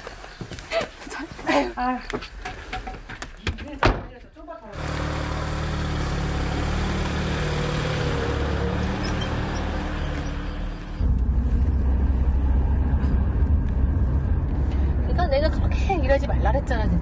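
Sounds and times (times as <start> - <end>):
car pulling away and passing: 4.8 - 17.0
engine and road noise in cabin: 4.8 - 17.0.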